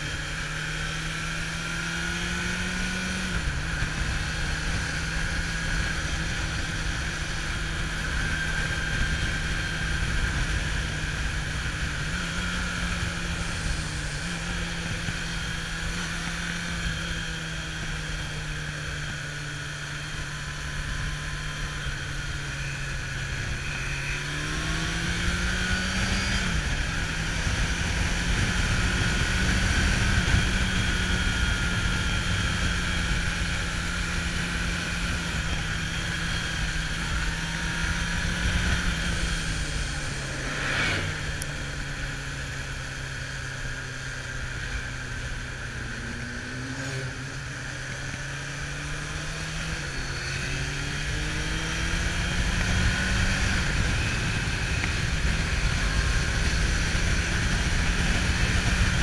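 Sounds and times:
motorcycle engine running: 0:00.0 - 0:59.0
wind rushing over microphone: 0:20.8 - 0:43.2, 0:45.3 - 0:59.0.

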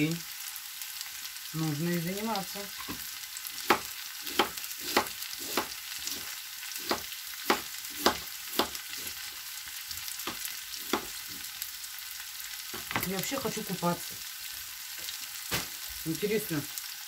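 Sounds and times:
vegetables sizzling in a pan: 0:00.0 - 0:17.0
knife chopping on plastic board: 0:03.6 - 0:06.2, 0:06.8 - 0:09.1, 0:10.2 - 0:11.2.

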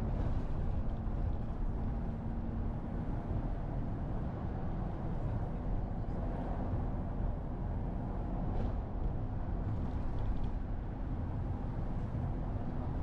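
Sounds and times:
wind and road noise rumble: 0:00.0 - 0:13.0.

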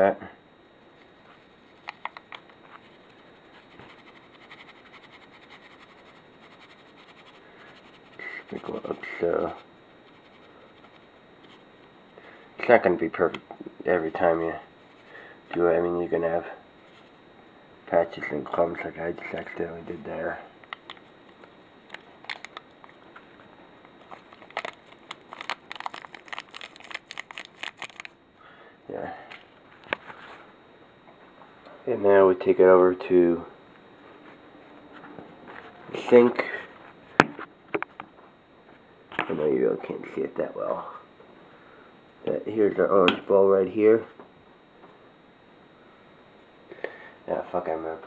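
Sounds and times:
foil packet crinkling: 0:24.1 - 0:28.2.

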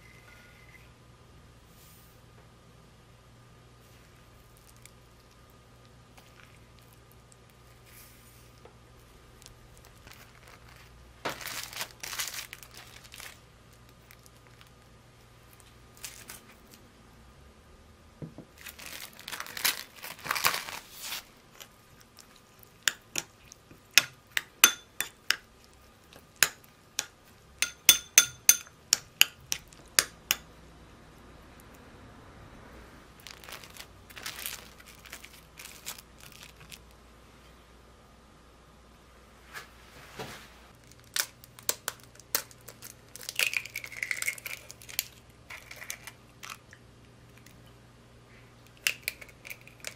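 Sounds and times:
plastic cling wrap crinkling: 0:06.2 - 0:14.9, 0:15.5 - 0:16.8, 0:18.5 - 0:22.8, 0:33.2 - 0:37.0, 0:40.8 - 0:46.6
spoon clinking against glass bowl: 0:24.0 - 0:25.4, 0:27.6 - 0:30.5.

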